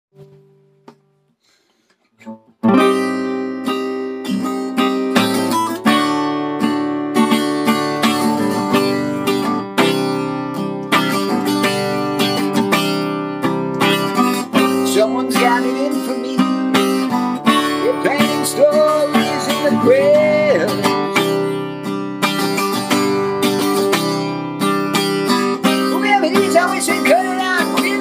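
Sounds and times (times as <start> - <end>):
acoustic guitar strumming chords: 2.2 - 28.0.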